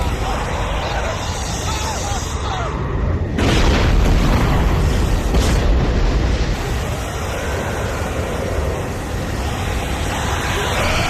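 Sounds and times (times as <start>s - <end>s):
deep explosion blasts: 3.2s - 9.9s.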